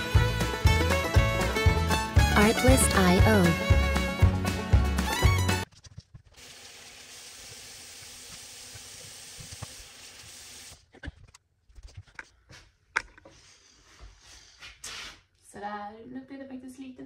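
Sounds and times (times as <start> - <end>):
tap running into a basin: 6.4 - 10.7.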